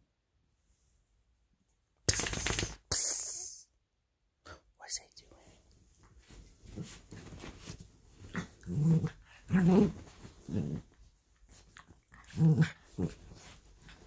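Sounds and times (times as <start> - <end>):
dogs growling: 8.2 - 11.0, 11.6 - 14.0.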